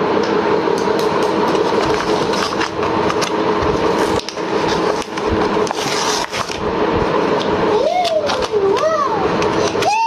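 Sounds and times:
steady mechanical hum: 0.0s - 10.0s.

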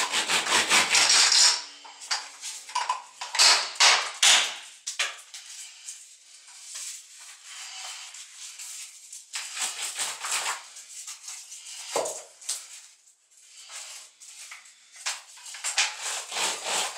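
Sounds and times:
sponge scrubbing glass tiles: 5.3s - 16.9s.

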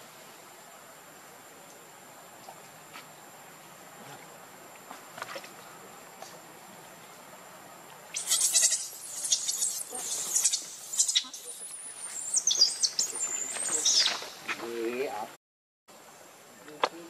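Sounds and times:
baby monkey screaming: 8.2s - 11.6s.

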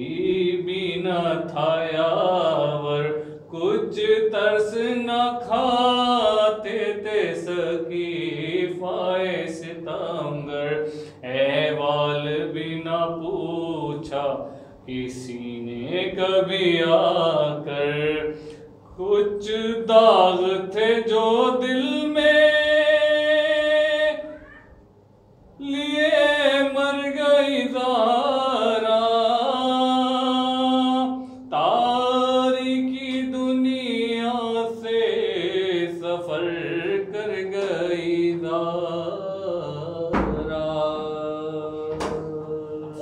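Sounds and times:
man chanting a lament: 0.0s - 24.3s, 25.6s - 43.0s
sharp knocks: 40.1s - 40.9s, 41.9s - 42.4s.

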